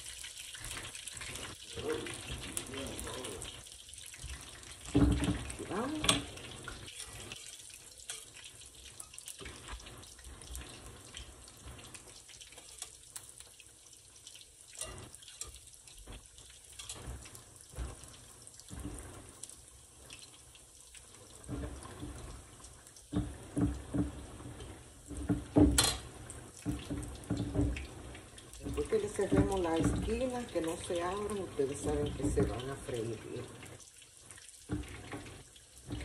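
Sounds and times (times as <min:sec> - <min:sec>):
frying in hot oil sizzling: 0:00.0 - 0:36.0
spoon clinking on metal pan: 0:14.8 - 0:15.6.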